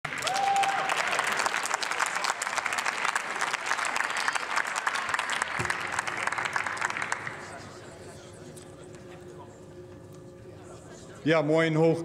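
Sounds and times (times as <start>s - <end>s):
crowd applause: 0.0s - 8.0s.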